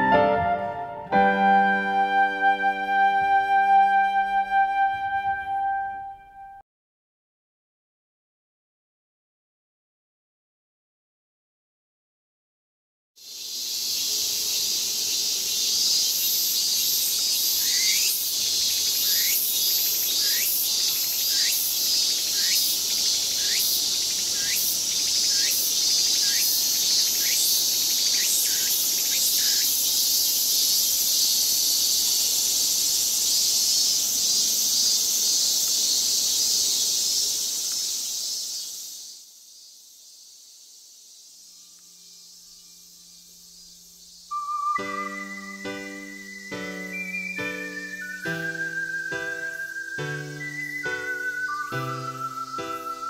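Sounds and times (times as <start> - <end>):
cicadas buzzing: 13.2 - 53.0.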